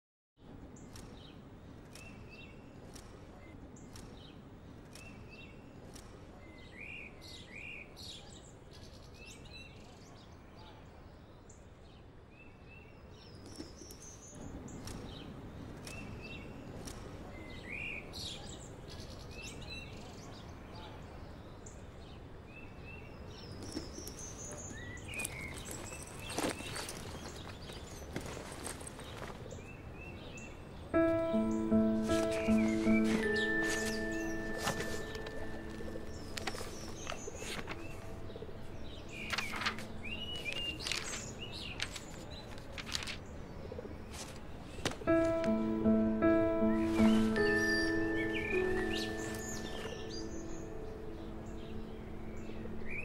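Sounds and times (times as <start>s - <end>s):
songbirds chirping: 0.4s - 53.0s
low background hum: 34.3s - 42.1s.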